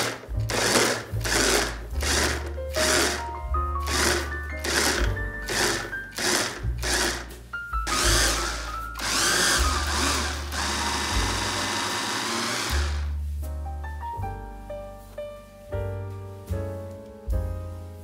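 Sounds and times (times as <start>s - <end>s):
electric food chopper whirring: 0.0s - 3.2s, 3.8s - 7.2s, 7.9s - 13.1s
background piano music: 0.0s - 18.0s.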